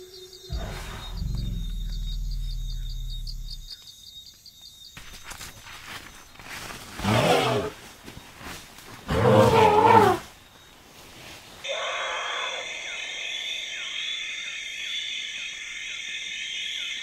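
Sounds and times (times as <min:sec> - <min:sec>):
elephant rumbling low: 0:00.5 - 0:03.8
loud high elephant calls: 0:09.1 - 0:10.2.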